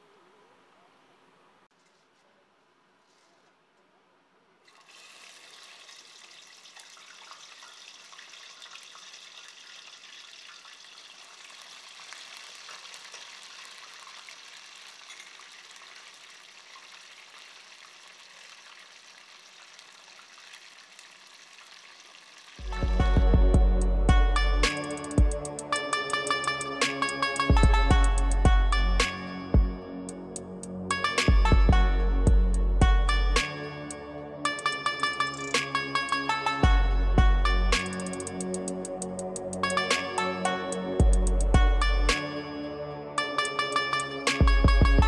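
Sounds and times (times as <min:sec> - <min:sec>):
oil sizzling deep frying: 0:04.7 - 0:22.7
electronic music heavy beat: 0:22.6 - 0:33.5, 0:36.6 - 0:42.2, 0:43.4 - 0:45.0.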